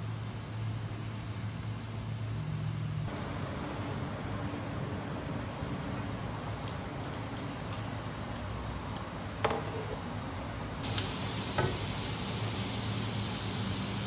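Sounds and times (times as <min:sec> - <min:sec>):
food sizzling in a pan: 0:10.8 - 0:14.0.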